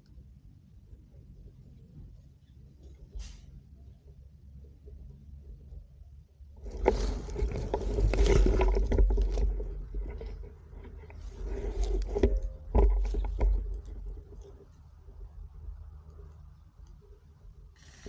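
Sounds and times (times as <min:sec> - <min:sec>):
rustling in dry leaves: 0:06.6 - 0:10.4.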